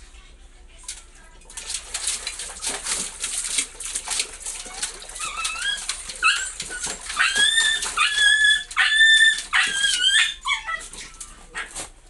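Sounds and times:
dog whining: 4.6 - 11.7.

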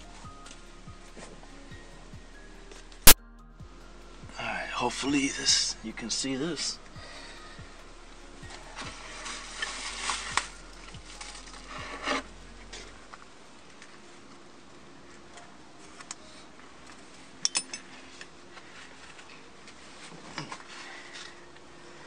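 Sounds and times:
straps rustling: 8.5 - 13.0
metal buckles clinking: 17.4 - 18.0.

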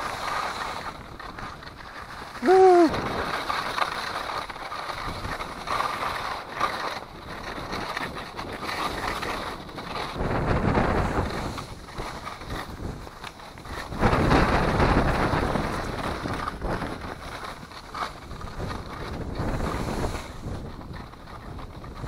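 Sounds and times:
skis sliding over crusty snow: 0.0 - 22.0
wind rushing over microphone: 0.0 - 22.0
high-pitched cry: 2.4 - 2.9.

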